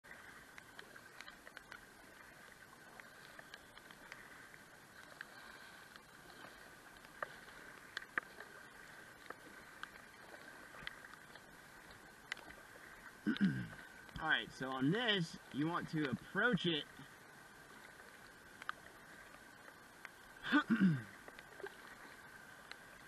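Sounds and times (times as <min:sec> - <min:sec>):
paddle splashes: 0:00.0 - 0:23.0
river water rushing: 0:09.5 - 0:18.1.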